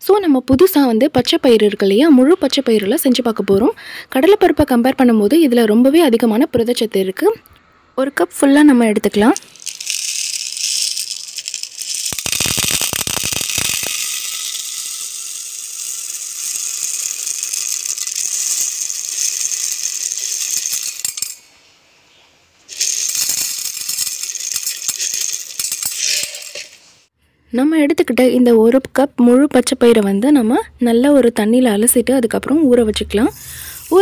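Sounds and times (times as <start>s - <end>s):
beans pouring dry rattle: 9.3s - 21.5s, 22.7s - 27.0s
beans scattering onto steel: 9.3s - 21.5s, 22.7s - 27.0s.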